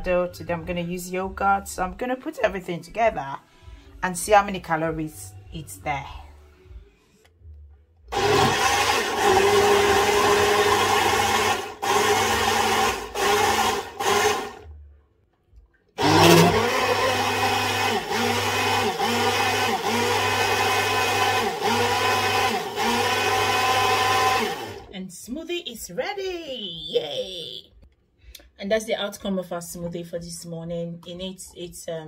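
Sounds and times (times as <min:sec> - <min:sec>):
blender motor blending: 0:08.1 - 0:14.7, 0:16.0 - 0:24.9.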